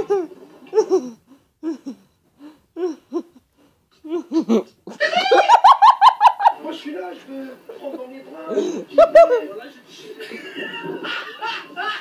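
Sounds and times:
person laughing: 4.0 - 6.4.

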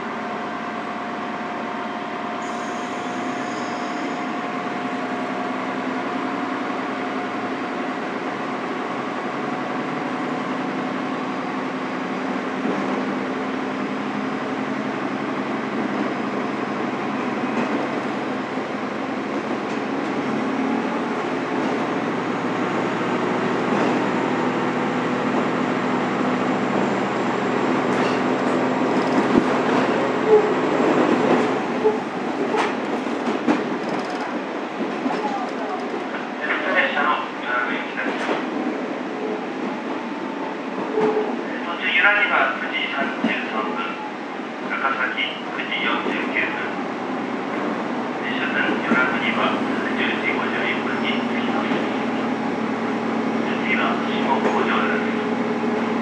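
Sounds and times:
wheel and rail noise: 26.6 - 36.7.

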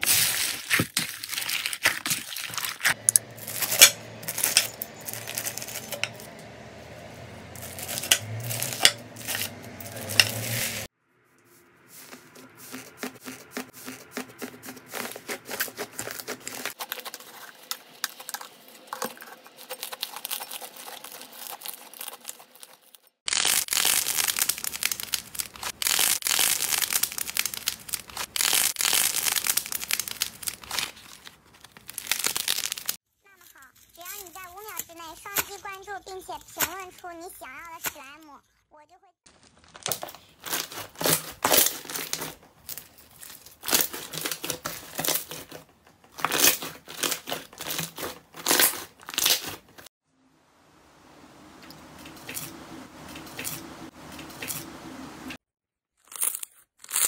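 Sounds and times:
slime crackling and popping: 23.3 - 33.0.

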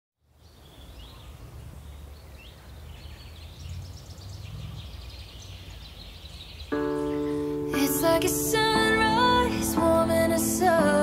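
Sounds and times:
small birds chirping: 0.2 - 7.9.

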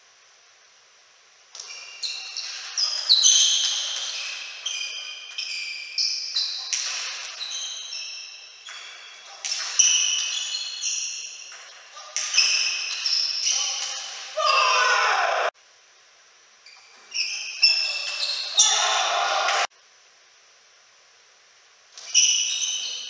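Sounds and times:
table tennis ball hits: 6.6 - 7.5, 8.6 - 14.4.

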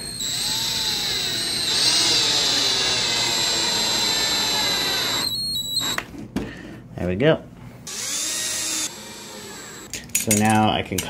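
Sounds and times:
cordless drill motor whine: 0.0 - 6.0, 7.9 - 9.9.

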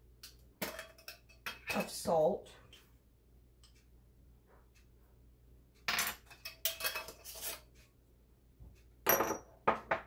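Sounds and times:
spoon clinking and rattling: 0.6 - 1.8, 6.1 - 7.6
spoon scraping jar: 6.4 - 7.7.

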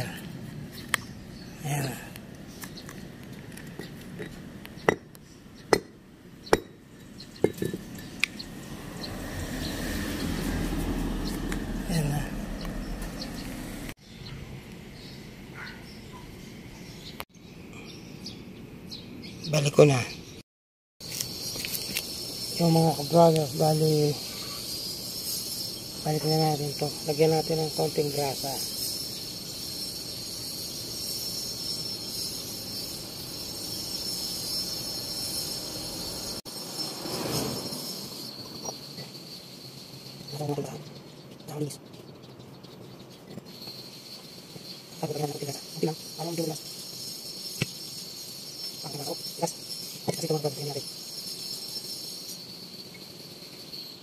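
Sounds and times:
insects droning: 5.5 - 18.6, 21.0 - 54.0
metal parts clinking: 21.0 - 23.7.

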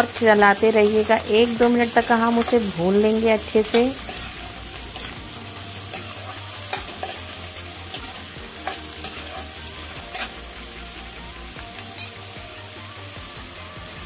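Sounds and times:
prawns sizzling in hot oil: 0.0 - 14.0
spoon scraping a steel pan: 3.6 - 5.2, 5.9 - 10.4, 11.9 - 12.2.

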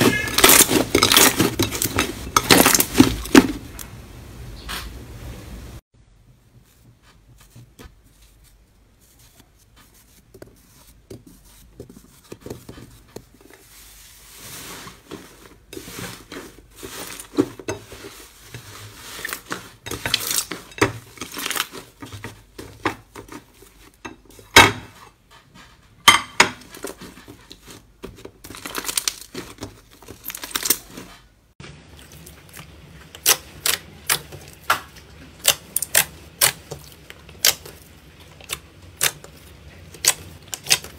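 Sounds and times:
slime popping and crackling: 0.0 - 3.4, 31.8 - 40.9.

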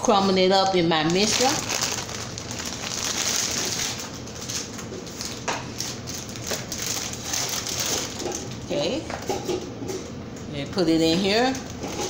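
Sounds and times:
plastic bag crinkling: 0.8 - 8.6.

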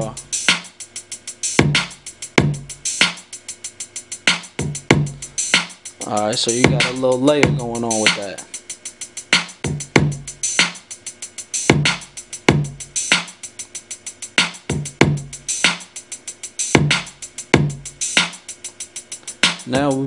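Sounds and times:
hi-hat ticks: 0.0 - 20.0
hip-hop drum loop: 0.0 - 20.0
kick drum hits: 4.6 - 5.1, 9.7 - 10.2, 12.5 - 12.7, 14.7 - 15.2, 17.6 - 17.8.

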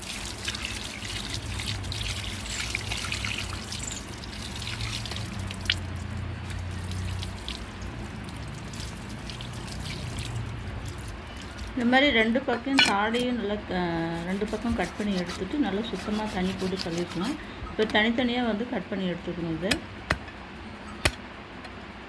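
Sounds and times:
water trickling and splashing: 0.0 - 17.6
hands rubbing wet skin: 14.0 - 17.4.

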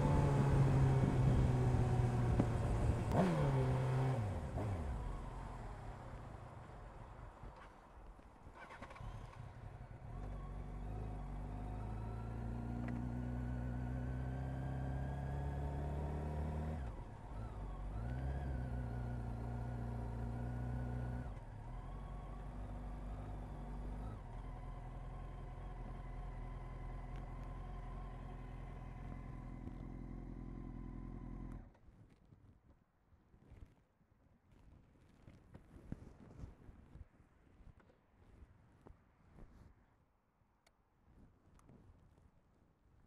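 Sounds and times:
motorcycle engine revving: 0.0 - 5.6, 8.6 - 31.7.

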